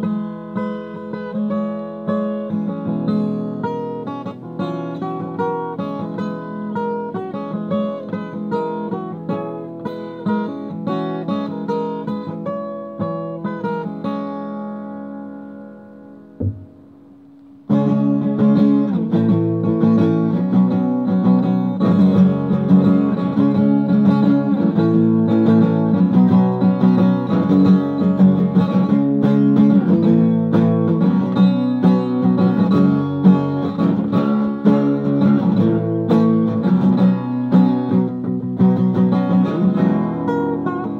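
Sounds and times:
acoustic guitar picking: 0.0 - 40.9
brief knock: 16.4 - 17.2.

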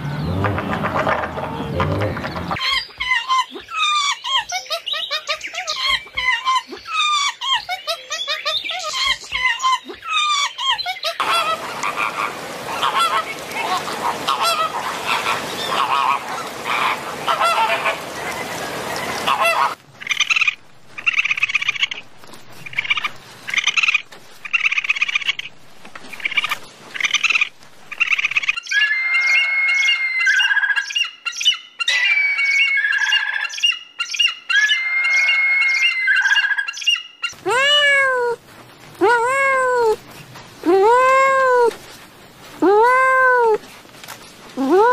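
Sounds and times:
kitten meowing: 37.5 - 38.4.

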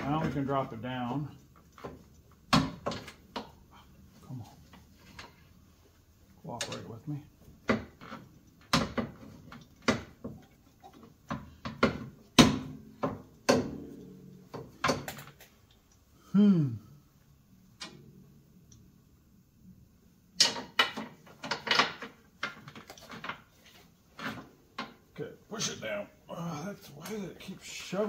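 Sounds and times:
person grunting: 16.2 - 17.0.

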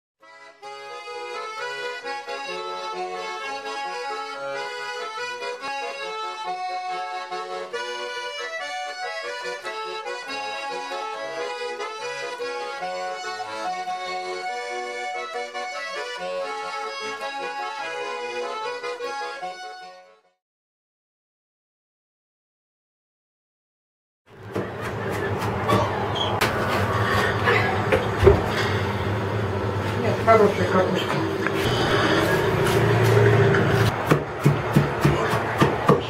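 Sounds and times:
accordion folk tune: 0.2 - 20.4, 28.5 - 34.4.

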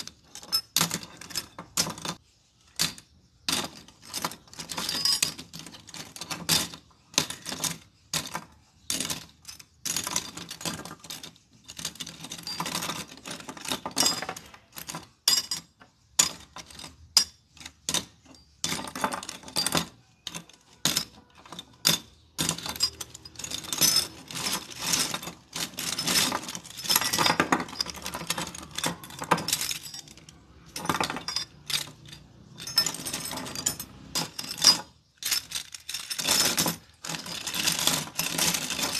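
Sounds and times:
metal hinges clinking: 0.0 - 38.9.

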